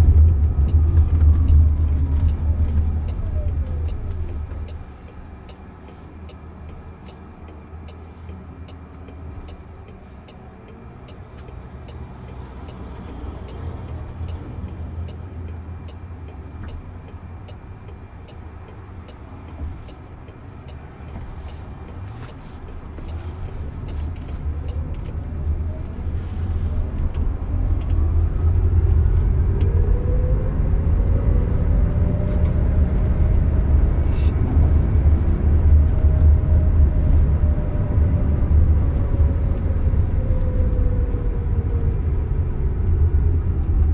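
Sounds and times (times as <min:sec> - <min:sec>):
turn signal ticking: 0:00.0 - 0:30.0
road and tyre rumble: 0:00.0 - 0:43.9.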